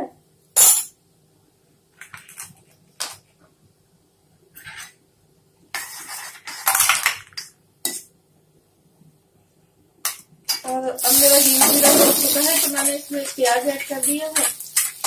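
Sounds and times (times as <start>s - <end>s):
spoon scraping in iron pan: 5.7s - 8.1s, 11.4s - 15.0s
steel utensils clinking: 10.5s - 15.0s.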